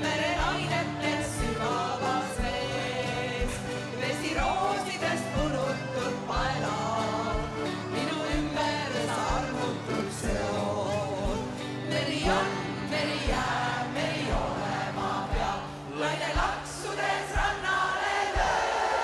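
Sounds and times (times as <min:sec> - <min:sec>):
live band music: 0:00.0 - 0:19.0
voices singing together: 0:00.0 - 0:19.0
kick drum beat: 0:02.3 - 0:07.7, 0:13.2 - 0:19.0.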